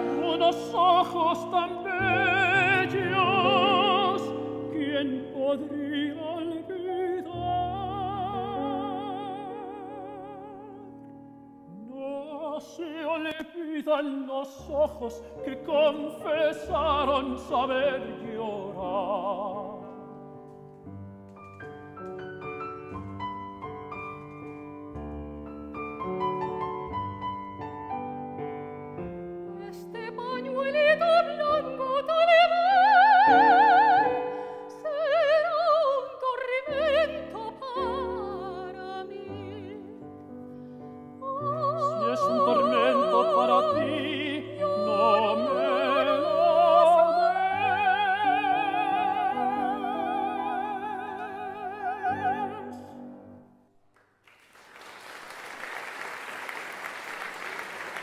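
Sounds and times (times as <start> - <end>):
piano accompaniment: 0.0 - 13.4, 14.5 - 53.8
operatic duet singing: 0.0 - 19.9, 29.6 - 40.1, 41.2 - 53.2
audience applause: 54.2 - 58.0.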